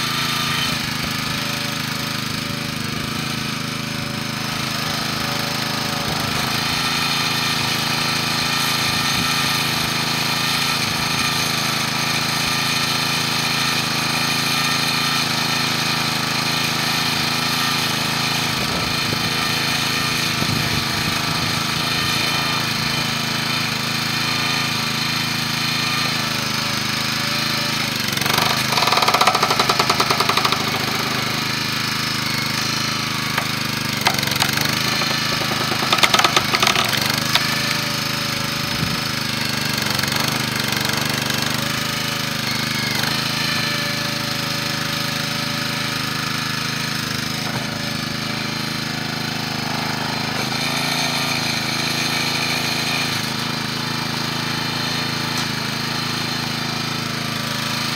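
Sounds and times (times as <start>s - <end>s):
small gas engine running: 0.0s - 57.9s
loud rattling: 2.2s - 8.0s, 27.9s - 41.1s.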